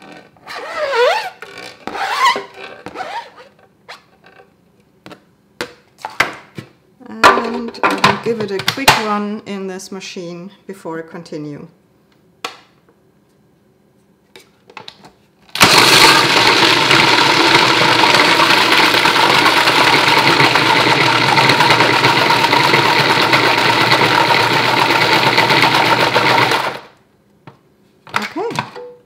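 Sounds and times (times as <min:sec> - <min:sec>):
food chopper running: 0:15.6 - 0:27.0.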